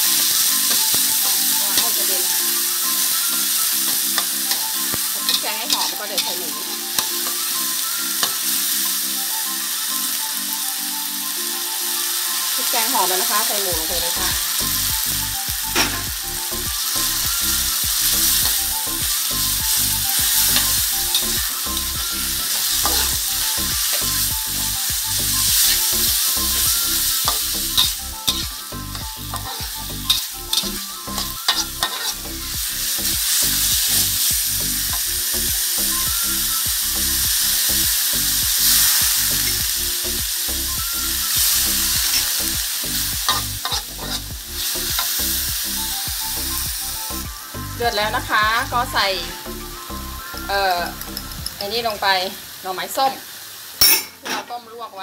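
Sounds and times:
pork sizzling in hot oil: 0.0s - 55.0s
metal spatula scraping a wok: 3.0s - 7.4s, 20.1s - 24.1s, 25.5s - 32.2s, 43.2s - 45.2s.

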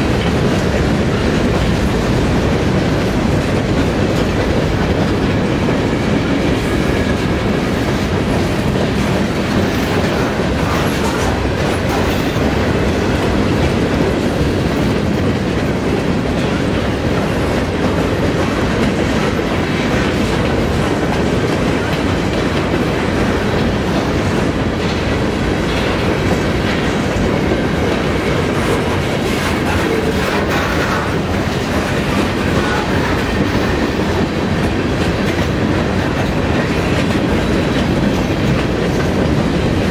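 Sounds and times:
train wheels rolling on rails: 0.0s - 39.9s.

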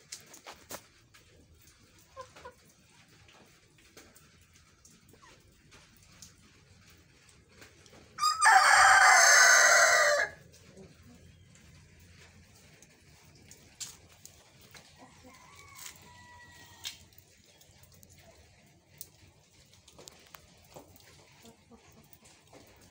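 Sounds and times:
rooster crowing hoarsely: 8.2s - 10.4s, 15.2s - 17.0s.

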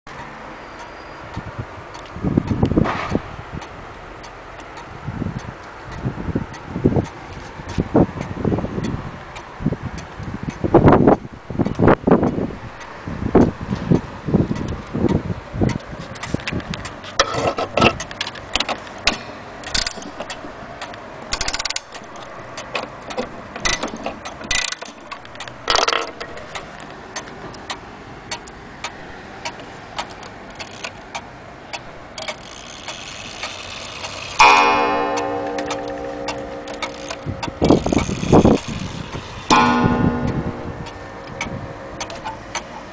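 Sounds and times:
wall clock ticking: 18.6s - 30.2s, 31.2s - 42.8s
clock striking wire gong: 19.1s - 20.6s, 34.1s - 42.9s.

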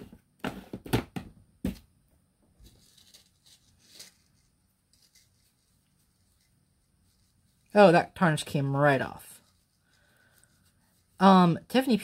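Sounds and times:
cloth rubbing on necklace: 2.7s - 11.9s.

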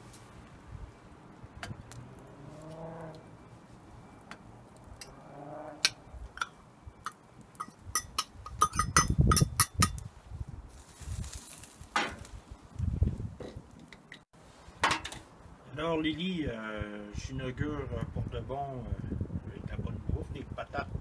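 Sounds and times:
metal pot lid clinking: 7.6s - 10.0s.

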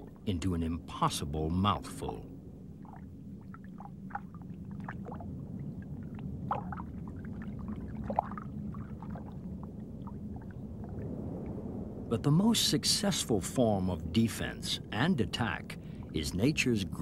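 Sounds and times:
faint hum: 0.0s - 17.0s
underwater low rumble: 1.6s - 12.5s
bubbling gurgling pops: 5.9s - 9.4s.

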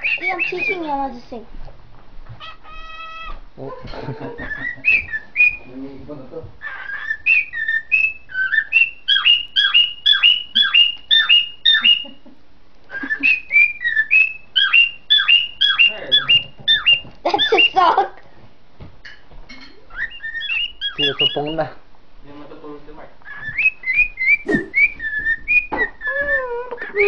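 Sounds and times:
cockatiel whistling: 4.4s - 5.7s, 6.8s - 12.1s, 13.0s - 17.8s, 20.0s - 21.6s, 23.3s - 27.0s.

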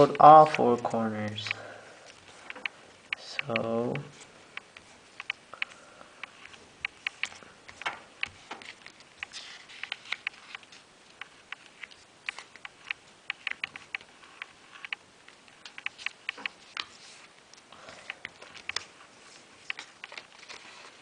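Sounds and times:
paper being folded and creased: 6.4s - 12.6s, 15.6s - 17.4s, 18.2s - 21.0s.

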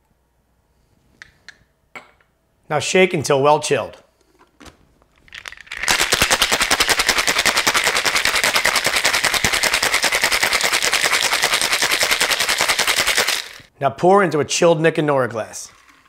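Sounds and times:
ice rattling in cocktail shaker: 5.2s - 13.7s
shaker lid clicks: 5.4s - 13.7s.

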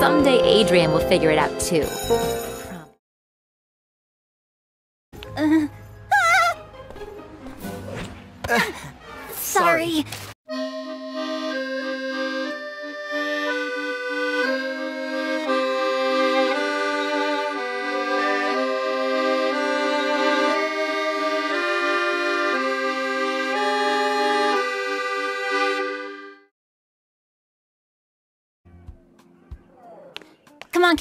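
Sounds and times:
instrumental music with held chords: 10.5s - 26.5s.

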